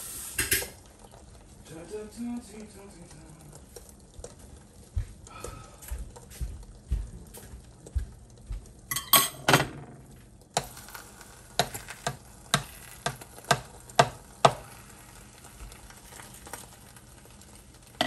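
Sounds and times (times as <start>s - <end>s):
faint sizzling: 0.0s - 18.0s
utensils clattering: 8.9s - 9.9s
spatula clicking on skillet: 10.6s - 15.1s.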